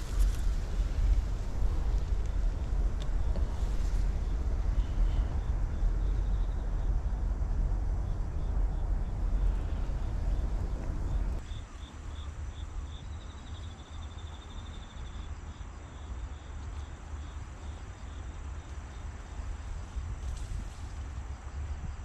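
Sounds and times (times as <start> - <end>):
low rumble: 0.0 - 11.4
cricket chirping: 0.0 - 22.0.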